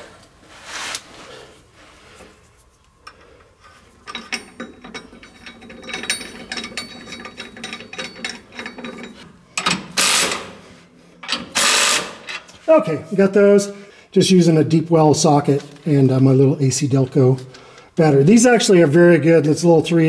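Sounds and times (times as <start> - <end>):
cordless impact wrench bursts: 9.9 - 10.6, 11.4 - 12.3
hand ratchet clicking: 11.2 - 12.4.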